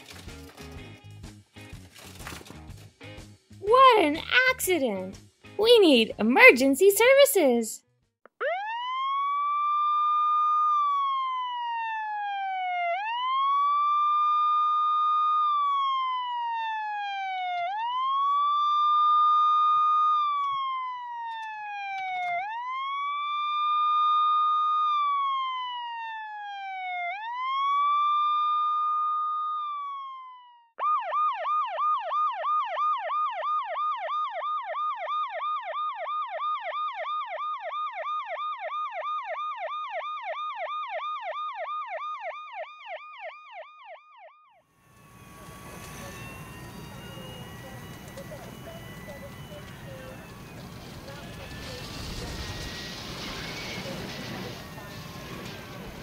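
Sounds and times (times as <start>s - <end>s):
fast siren yelp: 8.4s - 56.0s
toy electronic siren wailing: 16.8s - 25.3s, 44.8s - 56.0s.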